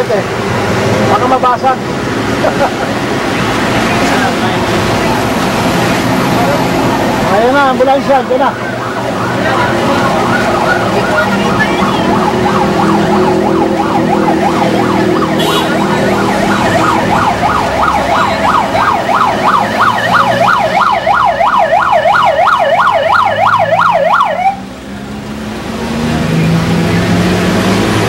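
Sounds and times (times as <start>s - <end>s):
ambulance siren yelping: 4.3s - 24.6s.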